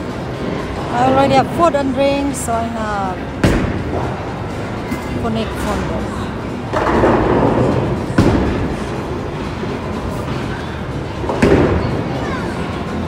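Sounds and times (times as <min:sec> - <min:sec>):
bowling balls rolling: 0:06.6 - 0:10.5.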